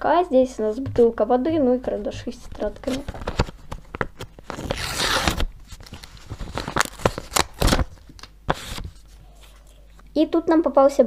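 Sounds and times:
paper crackling and rustling: 2.3 - 9.8.

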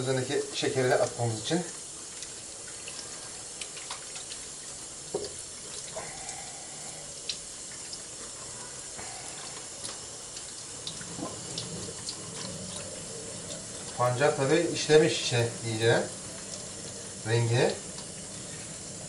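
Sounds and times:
small water splashes: 0.5 - 6.4
tap running into sink: 5.1 - 5.5.

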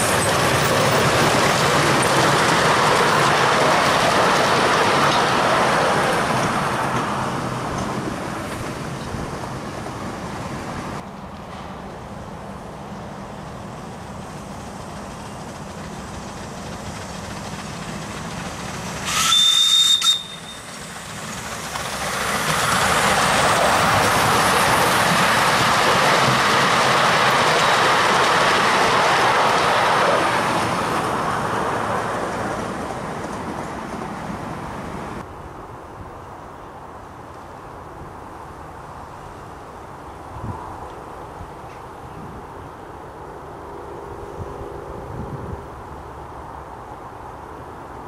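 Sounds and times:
steam train passing: 0.0 - 48.0
steam locomotive whistle: 19.0 - 21.0.

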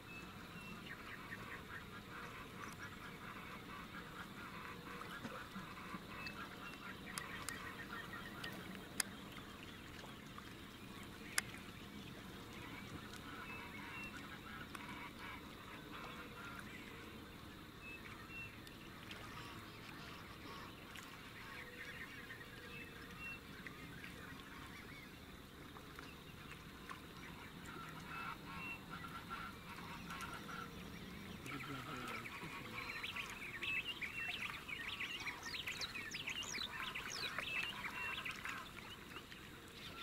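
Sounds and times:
honking bird calls: 27.3 - 39.0
birds chattering: 28.0 - 40.0.

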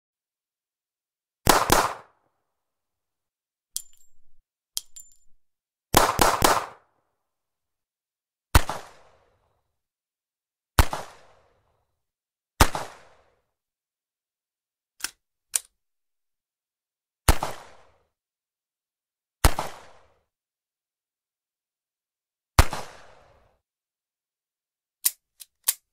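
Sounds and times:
revolver gunshots: 1.5 - 2.1, 6.0 - 6.8.

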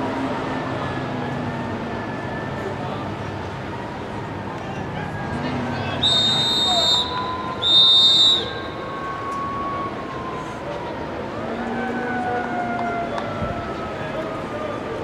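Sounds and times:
referee's whistle blasts: 6.0 - 8.8.

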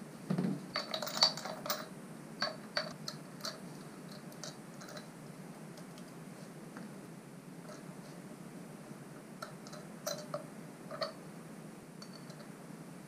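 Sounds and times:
metallic clicks and clinks: 0.7 - 5.1, 9.4 - 11.2, 12.0 - 12.5.

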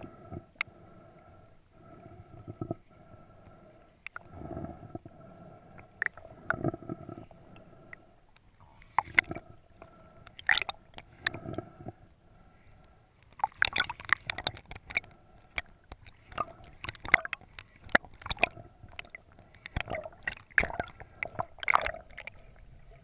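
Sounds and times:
faint steady hum: 0.0 - 23.0
underwater gurgling: 1.8 - 23.0
clicks and short crackles: 8.3 - 9.4, 10.2 - 11.6, 13.2 - 22.5.

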